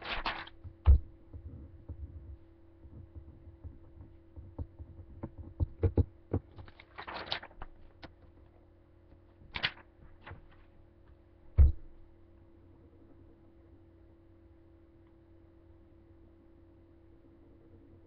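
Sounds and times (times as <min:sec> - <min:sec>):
paper rustling: 0:00.0 - 0:01.0, 0:05.0 - 0:08.1, 0:09.4 - 0:10.7
electrical hum: 0:00.0 - 0:18.0
loud thump: 0:11.6 - 0:11.9.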